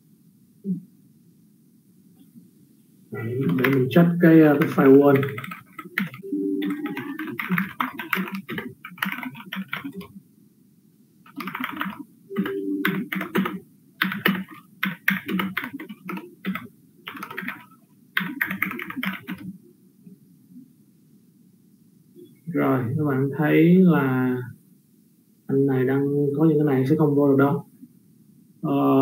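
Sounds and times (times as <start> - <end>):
computer keyboard typing: 3.4 - 10.1, 11.3 - 19.5.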